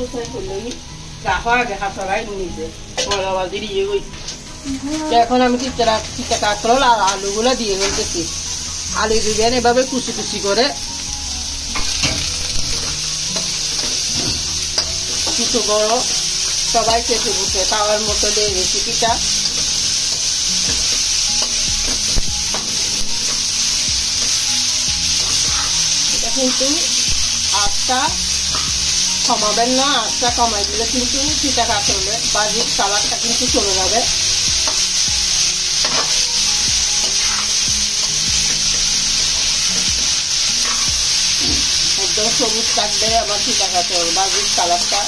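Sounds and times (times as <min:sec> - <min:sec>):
vegetables sizzling in oil: 0:00.0 - 0:45.0
spatula scraping a pan: 0:25.1 - 0:26.8, 0:37.0 - 0:38.1, 0:40.0 - 0:43.0.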